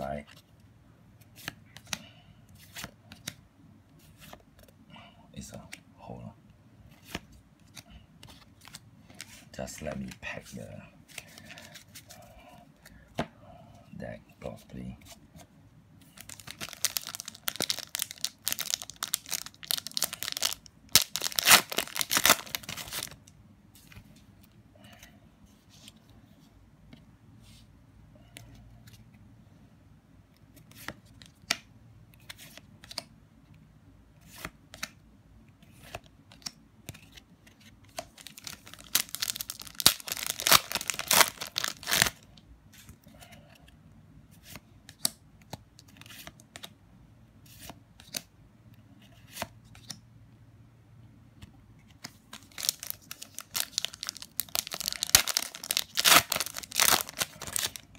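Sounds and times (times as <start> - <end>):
foil packs tearing and crinkling: 16.3 - 23.1, 38.3 - 42.1, 52.5 - 57.8.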